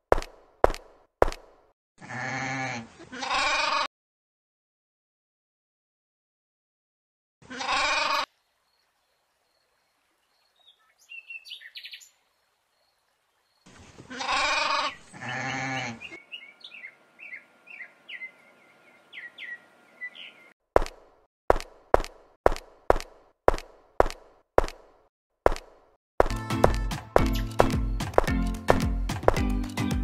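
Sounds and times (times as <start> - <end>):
sheep and goat bleating: 2.0 - 3.9, 7.4 - 8.3, 14.0 - 16.2
small birds chirping: 8.3 - 14.0, 14.8 - 20.6, 27.2 - 28.7.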